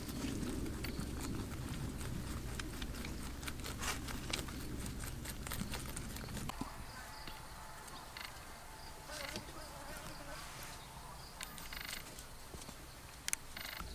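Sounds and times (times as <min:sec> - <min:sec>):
rabbits chewing cabbage leaves: 0:00.0 - 0:13.9.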